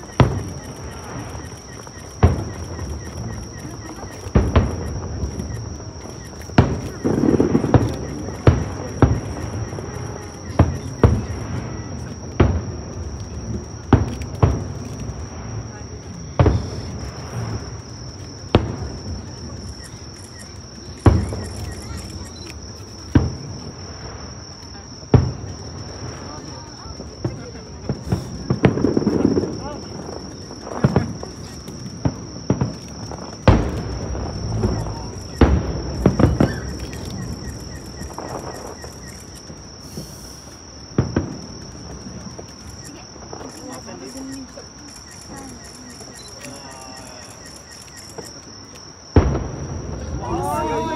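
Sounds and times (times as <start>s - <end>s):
distant fireworks booming: 0.0s - 50.9s
night insects droning: 0.0s - 50.9s
firework boom with echo: 27.2s - 38.8s, 49.1s - 50.9s.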